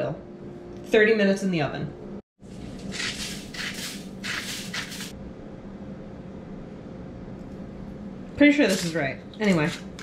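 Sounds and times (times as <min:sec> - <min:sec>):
salt grinder crunching: 0:02.8 - 0:05.1
low steady hum: 0:04.8 - 0:10.0.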